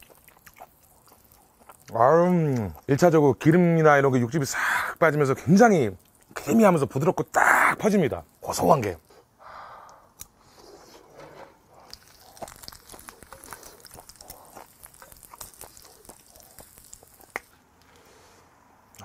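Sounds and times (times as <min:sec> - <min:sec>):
close chewing: 0:00.0 - 0:03.2, 0:09.0 - 0:18.1.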